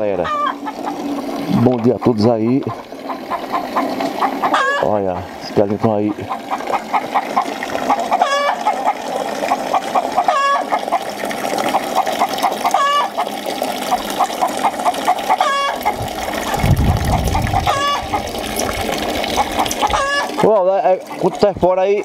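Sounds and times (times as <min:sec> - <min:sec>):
chickens clucking: 0:00.2 - 0:01.2, 0:01.8 - 0:05.0, 0:06.0 - 0:11.0, 0:13.9 - 0:20.5
loud chicken call: 0:04.4 - 0:04.9, 0:08.1 - 0:08.8, 0:10.2 - 0:10.8, 0:12.7 - 0:13.1, 0:15.3 - 0:15.9, 0:17.1 - 0:18.2, 0:19.8 - 0:20.4.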